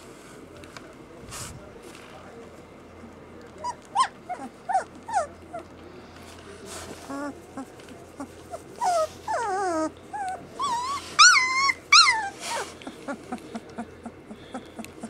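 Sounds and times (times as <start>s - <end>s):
puppies whimpering and yelping: 3.6s - 5.7s, 7.0s - 15.0s.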